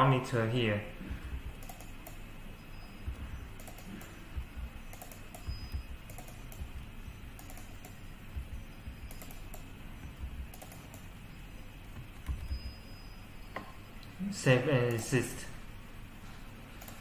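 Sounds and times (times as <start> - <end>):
keyboard keys tapping: 1.2 - 2.3, 3.0 - 11.2, 11.8 - 12.9.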